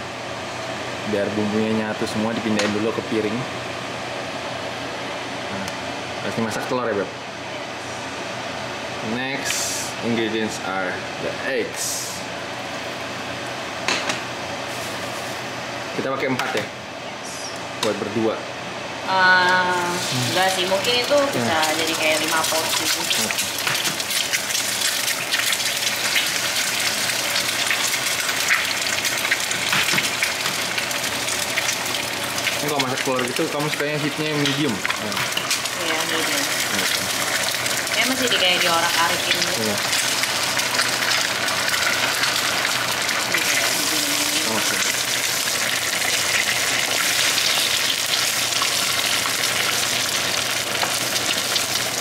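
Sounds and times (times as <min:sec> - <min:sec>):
eggs sizzling in a frying pan: 0:19.4 - 0:52.0.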